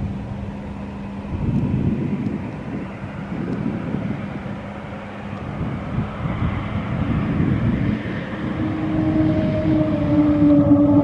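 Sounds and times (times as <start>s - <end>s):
jet engine rumble: 0.0s - 11.0s.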